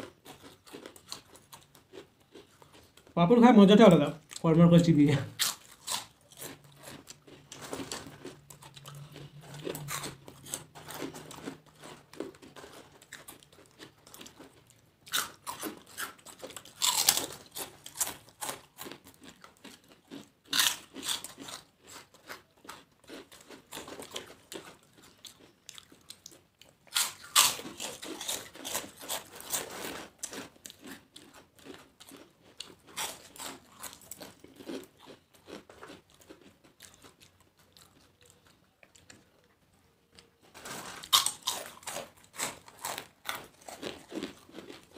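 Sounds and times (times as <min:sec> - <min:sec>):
crunching of crisp papads: 0:00.0 - 0:44.9.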